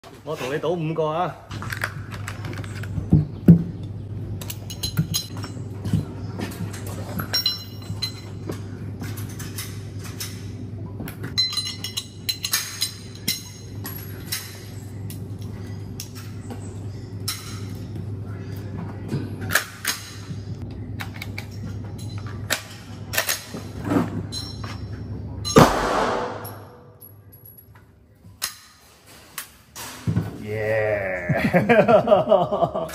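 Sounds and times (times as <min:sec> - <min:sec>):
low hum: 0:01.6 - 0:28.3
cartridges clinking: 0:11.4 - 0:15.2, 0:25.4 - 0:27.7.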